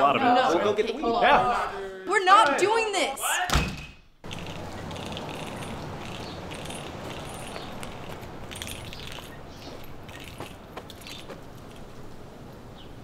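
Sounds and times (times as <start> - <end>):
jingles: 4.2 - 12.7
low background hum: 4.2 - 13.0.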